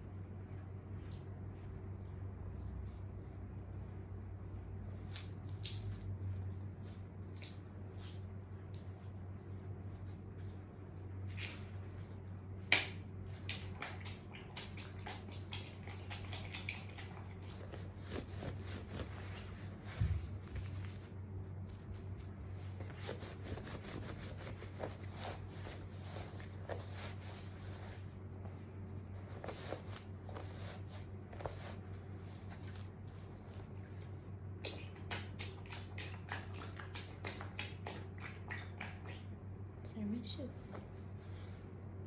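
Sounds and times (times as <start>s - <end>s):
water dripping: 5.1s - 8.0s
wet fabric squeezed and rubbed: 13.2s - 37.7s.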